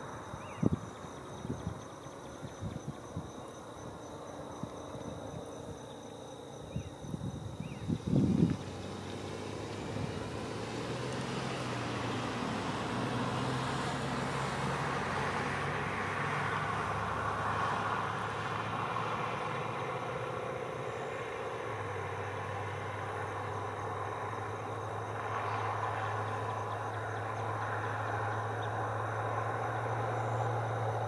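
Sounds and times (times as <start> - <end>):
road vehicle passing: 7.0 - 31.0.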